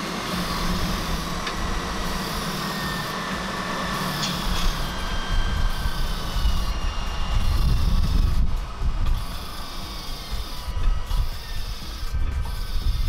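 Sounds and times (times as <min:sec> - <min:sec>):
centrifuge motor whine: 0:00.0 - 0:13.0
gusty low rumble: 0:03.3 - 0:13.0.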